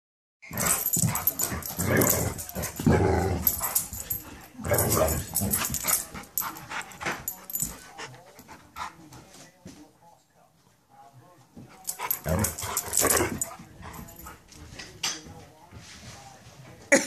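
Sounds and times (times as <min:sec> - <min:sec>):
dogs play-growling and barking: 0:00.4 - 0:09.0, 0:11.8 - 0:14.6
dogs scuffling: 0:00.5 - 0:09.9, 0:11.6 - 0:16.8.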